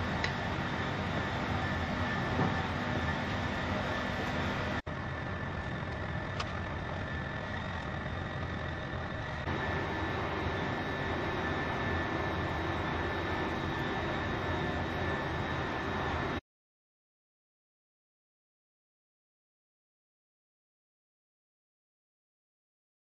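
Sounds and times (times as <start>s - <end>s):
faint high whining tones: 0.0s - 16.4s
machine drone with rushing noise: 0.0s - 16.4s.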